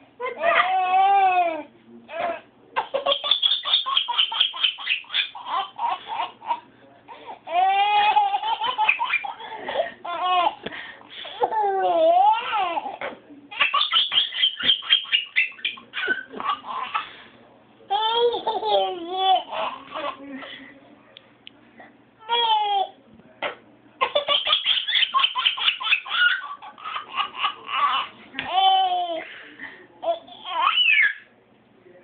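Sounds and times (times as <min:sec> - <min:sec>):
baby laughing and squealing: 0:00.2 - 0:06.6, 0:07.5 - 0:10.6, 0:11.4 - 0:17.0, 0:22.2 - 0:22.9, 0:24.0 - 0:29.2, 0:30.0 - 0:31.2.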